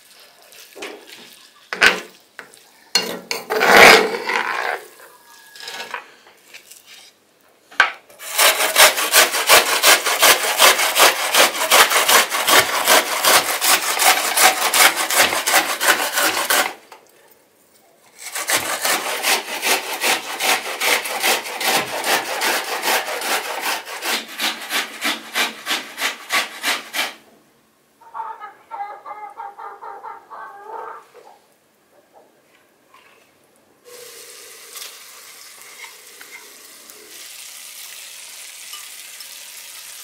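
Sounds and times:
onion grated on metal grater: 3.4 - 5.0, 8.2 - 16.8, 18.1 - 27.2, 35.6 - 37.1.

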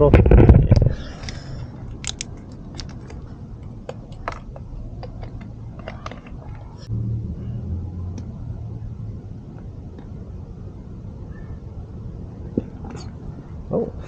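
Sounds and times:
low steady hum: 0.0 - 14.0
squeeze bottle clicks and crackles: 2.0 - 3.2.

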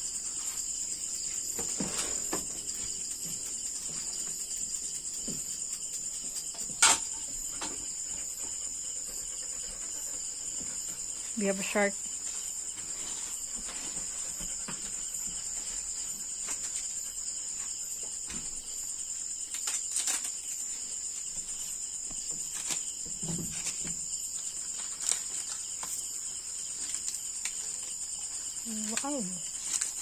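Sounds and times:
night insects chorus: 0.0 - 30.0
leaf wrappings rustling: 19.3 - 21.7, 22.4 - 30.0.

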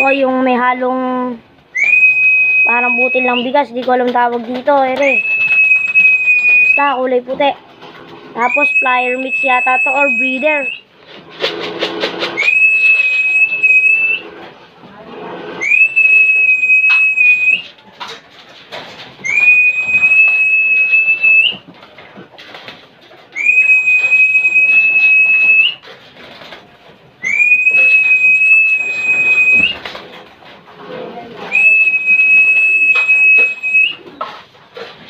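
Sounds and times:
long whistles: 1.7 - 3.4, 5.0 - 6.9, 8.4 - 10.9, 12.3 - 14.4, 15.6 - 17.7, 19.2 - 21.6, 23.3 - 25.8, 27.2 - 29.8, 31.5 - 34.2.

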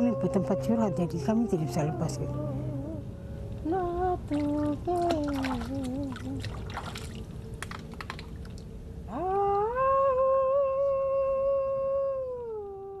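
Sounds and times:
water splashing and dripping: 4.3 - 8.8.

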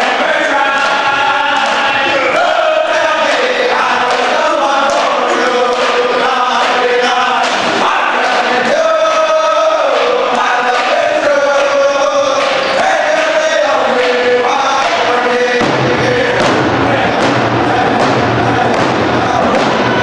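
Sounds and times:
men singing in unison: 0.0 - 20.0
hand drum beat: 15.6 - 20.0.

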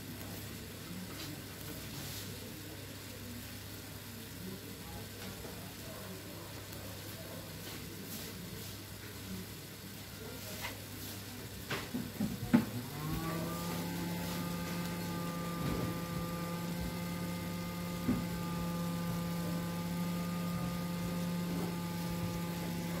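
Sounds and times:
electrical equipment humming: 11.7 - 23.0.

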